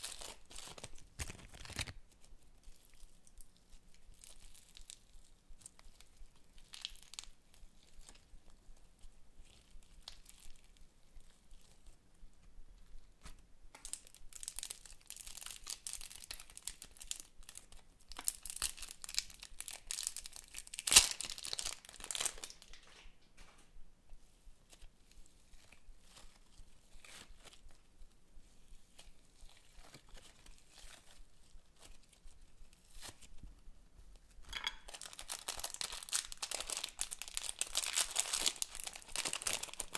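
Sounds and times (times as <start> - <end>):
plastic packet crinkling and tearing: 0.0 - 8.2, 9.5 - 10.8, 13.8 - 23.1, 34.6 - 39.9
foam bead slime crackling: 0.0 - 8.3, 8.9 - 11.9, 13.7 - 23.0, 34.8 - 39.9.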